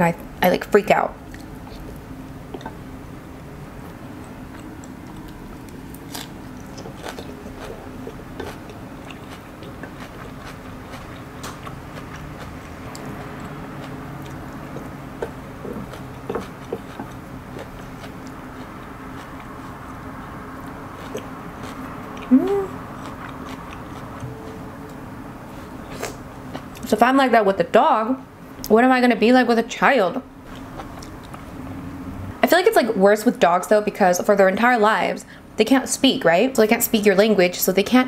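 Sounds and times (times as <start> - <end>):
low background hum: 0.0 - 38.0
person chewing: 4.2 - 26.9, 30.5 - 31.5.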